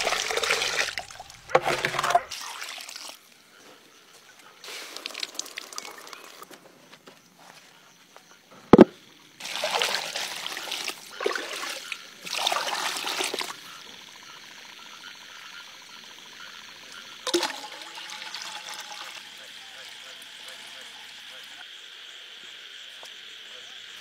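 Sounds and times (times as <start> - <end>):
liquid splashing and trickling: 0.0 - 3.2, 4.6 - 6.5, 9.4 - 13.6, 17.2 - 19.4.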